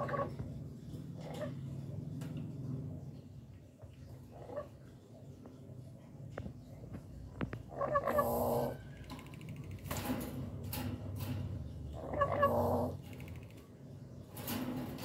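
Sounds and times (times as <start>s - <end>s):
parrot harsh buzzing calls: 7.7s - 8.8s.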